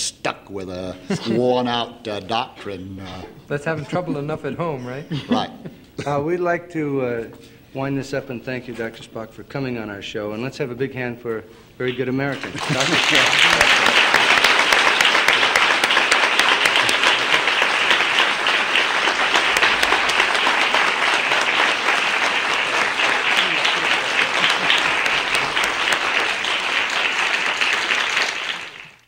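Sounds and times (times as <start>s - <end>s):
audience applauding: 11.9s - 29.0s.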